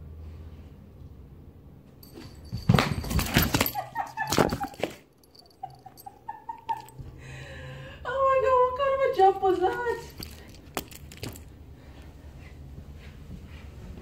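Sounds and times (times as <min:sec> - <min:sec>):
paws scrabbling on floor: 0:09.6 - 0:14.0.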